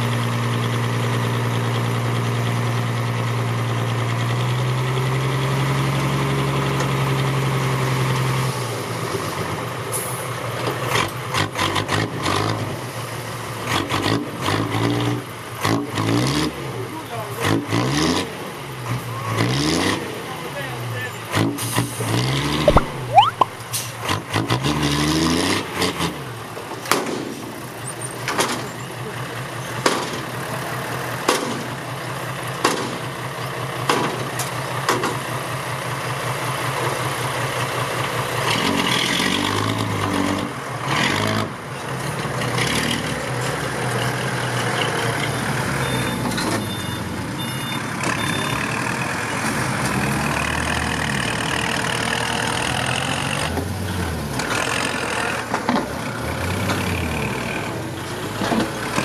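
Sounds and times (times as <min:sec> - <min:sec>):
high beeps: 0:22.7 - 0:23.6.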